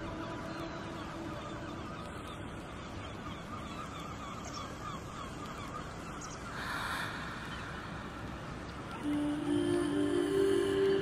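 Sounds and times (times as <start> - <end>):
gulls calling: 0.0 - 11.0
low background noise: 0.0 - 11.0.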